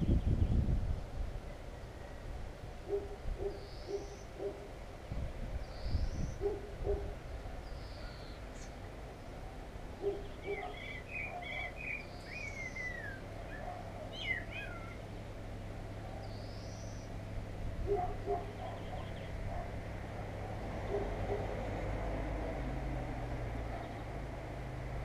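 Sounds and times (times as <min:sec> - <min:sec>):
small birds chirping and warbling: 0:02.9 - 0:17.2, 0:17.9 - 0:19.7, 0:23.7 - 0:24.1
low hooting bird call: 0:10.0 - 0:15.1.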